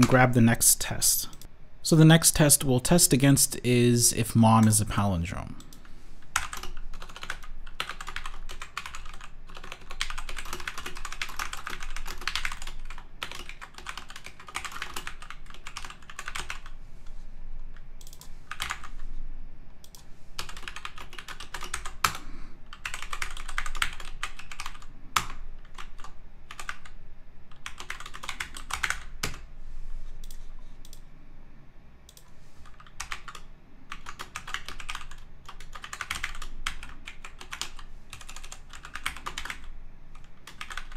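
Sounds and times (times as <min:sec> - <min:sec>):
typing on computer keyboard: 0:05.6 - 0:16.8, 0:18.0 - 0:18.9, 0:19.8 - 0:29.4, 0:32.1 - 0:40.9.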